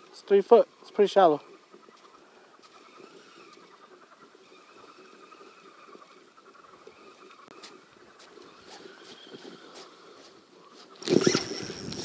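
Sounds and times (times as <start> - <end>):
fishing reel whirring and ticking: 11.0 - 12.0.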